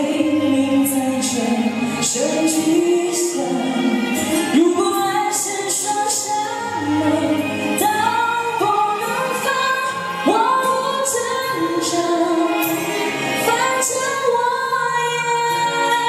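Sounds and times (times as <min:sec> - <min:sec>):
pop song sung into microphone: 0:00.0 - 0:16.0.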